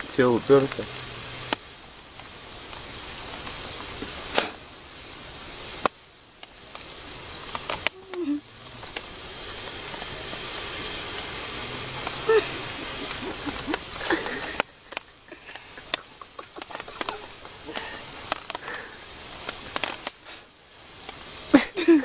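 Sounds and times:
outdoor background hiss: 0.0s - 22.0s
low falling murmur: 6.8s - 19.8s.

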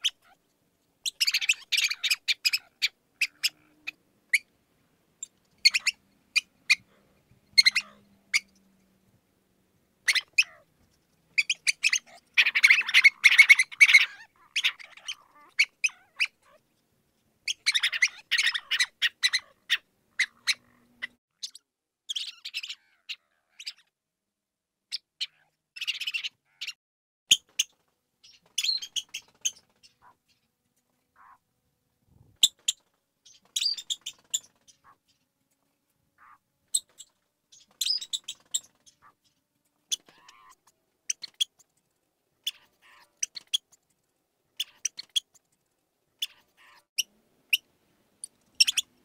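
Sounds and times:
mouse squeaking: 0.0s - 0.4s, 1.0s - 4.5s, 5.2s - 6.9s, 7.5s - 8.6s, 10.0s - 10.7s, 11.4s - 16.6s, 17.5s - 23.9s, 24.9s - 30.2s, 31.2s - 31.4s, 32.4s - 35.1s, 36.2s - 39.2s, 39.9s - 41.7s, 42.4s - 43.8s, 44.6s - 45.5s, 46.2s - 47.6s, 48.6s - 49.0s.

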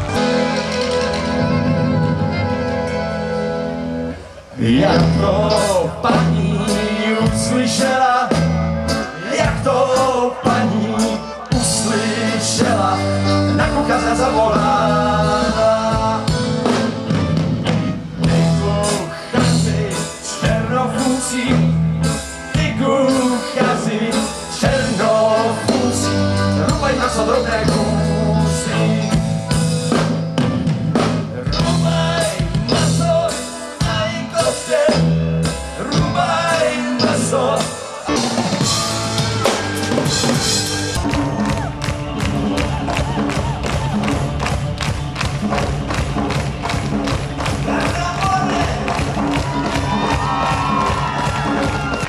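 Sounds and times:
drum kit: 0.0s - 4.0s, 4.6s - 52.0s
accordion: 0.0s - 30.7s
electric guitar: 0.0s - 52.0s
man singing: 4.5s - 17.0s, 18.2s - 30.0s, 31.0s - 38.8s, 47.4s - 52.0s.

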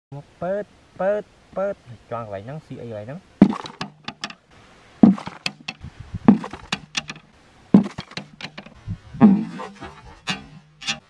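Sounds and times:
bamboo sticks knocking: 3.4s - 4.4s, 5.0s - 11.0s.

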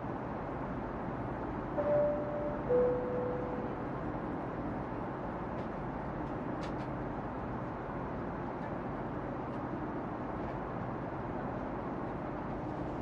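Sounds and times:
airliner cabin hiss and rumble: 4.6s - 13.0s.

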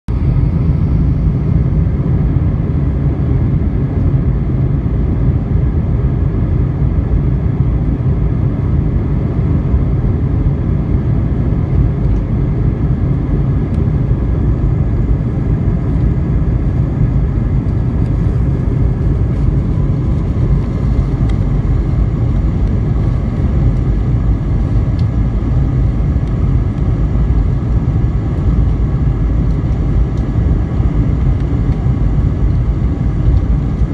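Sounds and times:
jet engine low rumble: 0.0s - 33.9s
faint steady whine: 0.1s - 33.9s.

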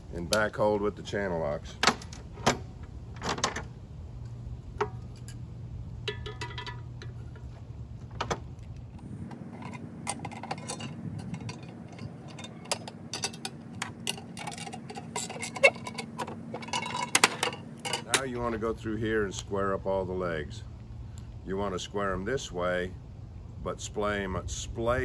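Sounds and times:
hand tools clinking on steel can: 9.3s - 18.3s.

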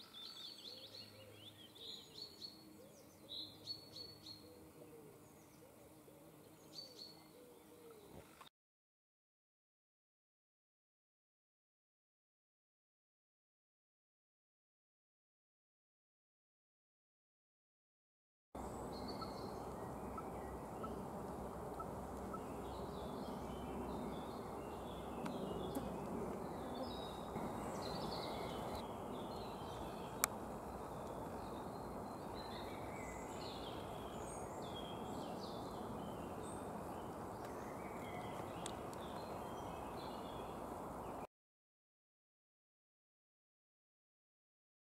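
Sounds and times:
low rush of background noise: 0.0s - 8.1s, 18.6s - 41.3s
small birds chirping: 0.0s - 8.5s, 18.6s - 41.3s.

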